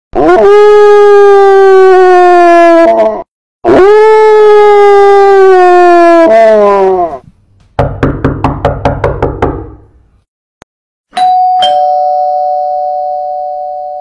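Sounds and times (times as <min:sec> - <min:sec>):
sharp knocks: 0:07.6 - 0:09.8
two-tone doorbell chime: 0:11.1 - 0:14.0.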